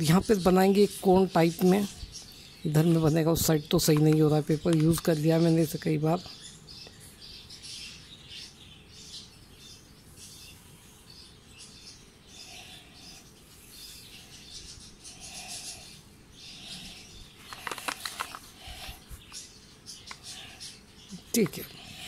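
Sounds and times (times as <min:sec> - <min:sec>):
paper rustling and crinkling: 0:17.4 - 0:19.1
sharp paper crackles: 0:17.4 - 0:19.4.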